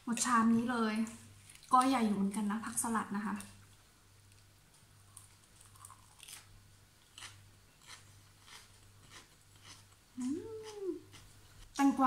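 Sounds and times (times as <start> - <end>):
person chewing salad greens: 1.3 - 2.3, 3.6 - 11.8.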